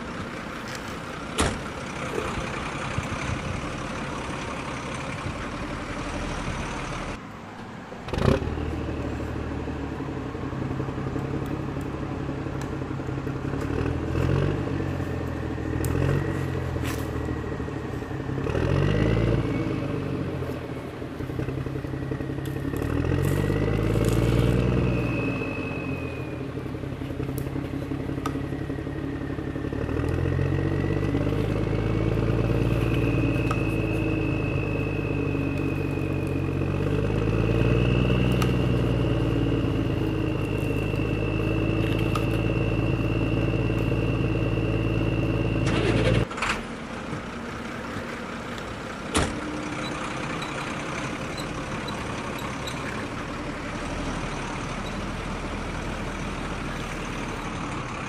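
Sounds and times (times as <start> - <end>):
diesel engine revving: 0.0 - 58.0
high whine: 14.6 - 46.3.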